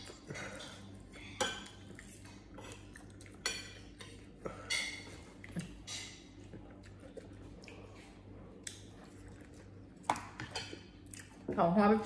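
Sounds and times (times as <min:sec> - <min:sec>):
cutlery clinking on ceramic plates: 0:03.4 - 0:05.2.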